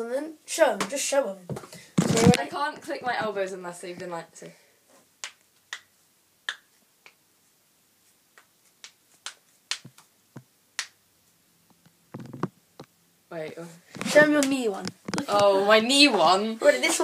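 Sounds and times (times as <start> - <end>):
knuckles cracking: 5.2 - 5.9, 6.5 - 7.2, 8.3 - 10.1.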